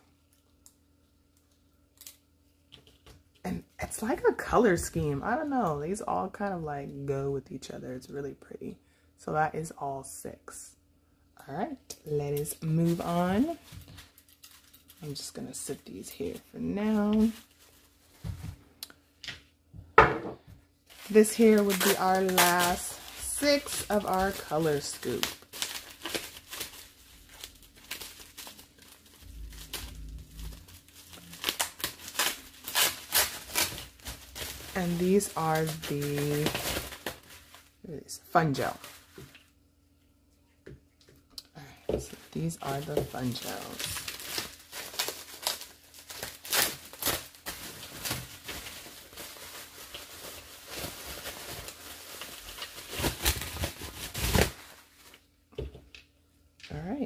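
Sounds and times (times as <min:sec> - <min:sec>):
bubble wrap crinkling: 0:11.9 - 0:19.1, 0:20.7 - 0:39.6, 0:41.8 - 0:56.0.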